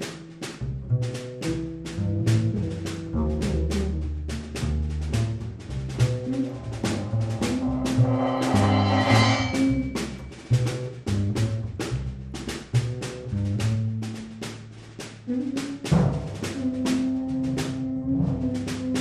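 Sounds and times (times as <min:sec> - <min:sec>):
drum kit playing quick strokes: 0:05.9 - 0:11.0
low held notes: 0:05.9 - 0:11.0.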